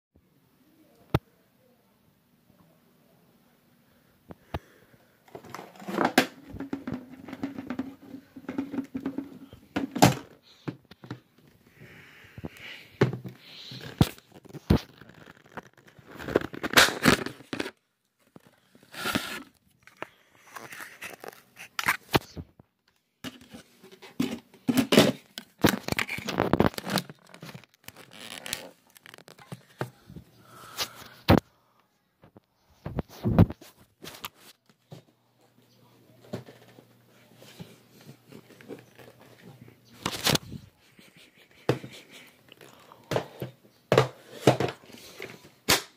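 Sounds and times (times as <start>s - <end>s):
knocks and thuds of handling: 5.3s - 11.4s.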